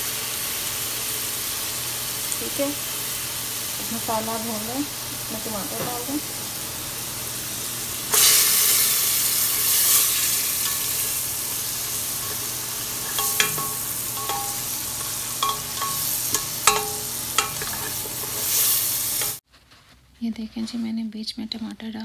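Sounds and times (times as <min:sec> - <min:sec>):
masala sizzling in hot ghee: 0:00.0 - 0:19.4
spatula knocking on metal pot: 0:13.0 - 0:18.0.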